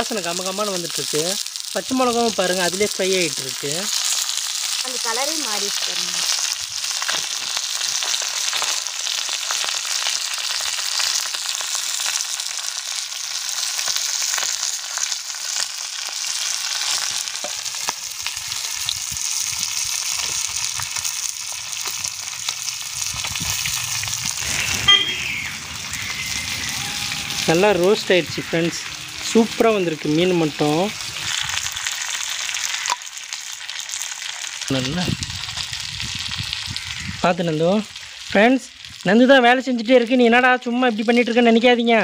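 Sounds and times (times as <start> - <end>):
fish frying in oil: 0.0 - 41.6
brief sharp sound: 24.3 - 29.8.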